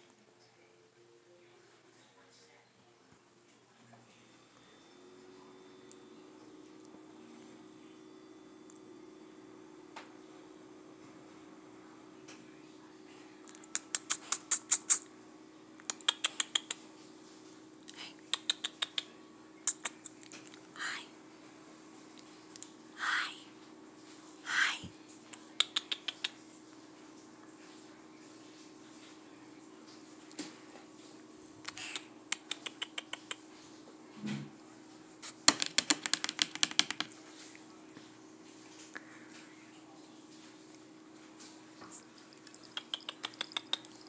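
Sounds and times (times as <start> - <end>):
cat licking clicks: 31.7 - 33.4, 42.3 - 44.0
cat licking fur: 41.8 - 44.0.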